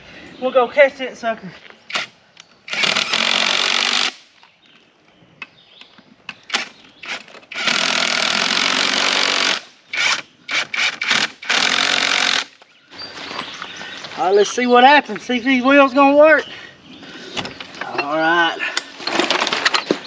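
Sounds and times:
power drill running: 2.7 - 4.2, 7.1 - 12.5.

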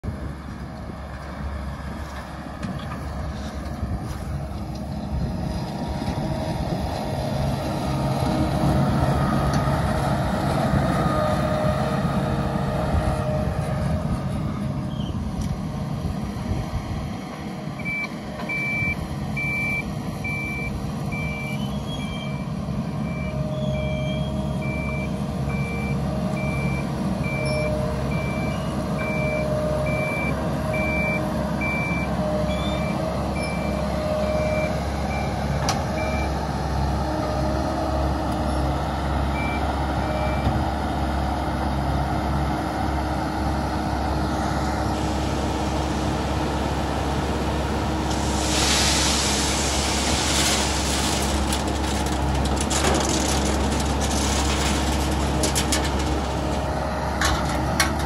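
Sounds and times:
harvester engine and machinery: 0.0 - 58.0
reversing alarm beeping: 17.8 - 22.4, 23.0 - 35.4.

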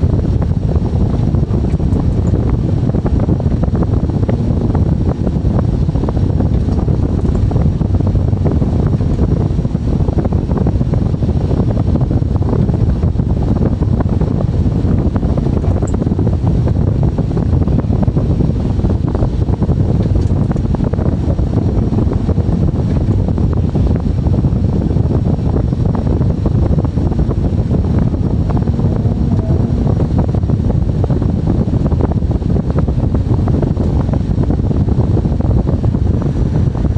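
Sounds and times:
excavator engine rumble: 19.5 - 32.0.

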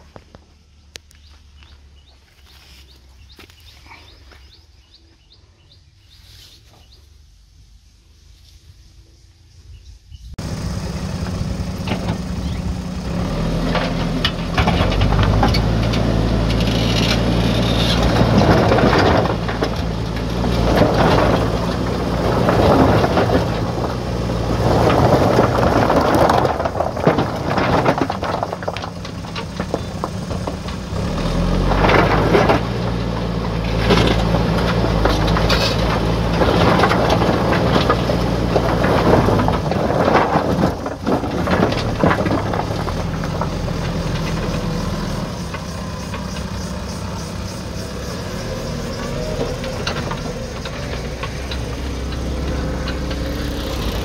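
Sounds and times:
diesel engine working under load: 9.8 - 54.0
stones grinding against steel bucket: 14.5 - 44.6.

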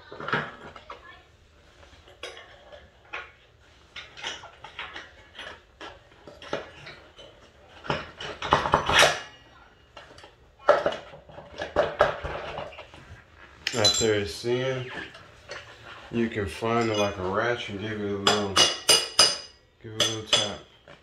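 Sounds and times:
metal tools clinking: 13.6 - 20.9.

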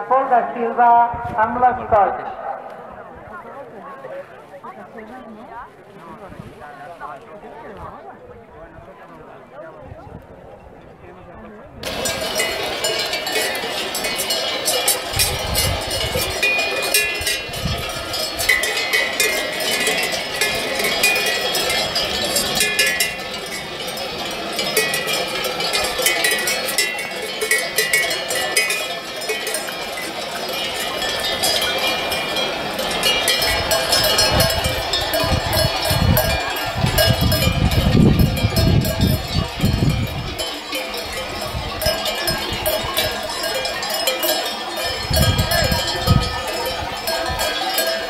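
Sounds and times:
livestock bells clanking: 11.8 - 48.0.

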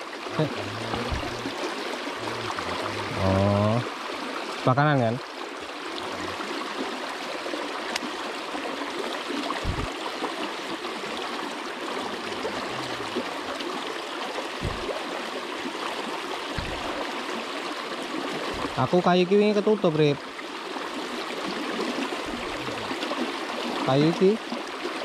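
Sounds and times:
river water rushing: 0.0 - 25.0
brief low thuds: 0.9 - 1.5, 9.6 - 9.9, 14.6 - 15.0, 16.6 - 17.0, 18.5 - 18.8.

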